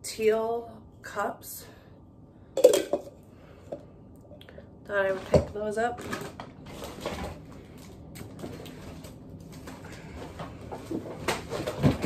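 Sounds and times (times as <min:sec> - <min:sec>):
shopping bags rustling: 0:05.0 - 0:12.0.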